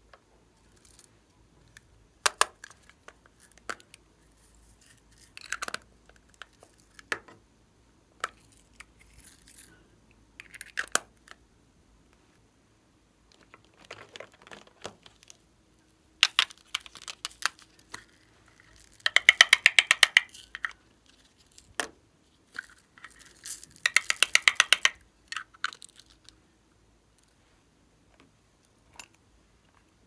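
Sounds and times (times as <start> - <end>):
plastic container crackling and clicking: 13.3 - 15.4, 18.8 - 20.8, 23.8 - 25.8.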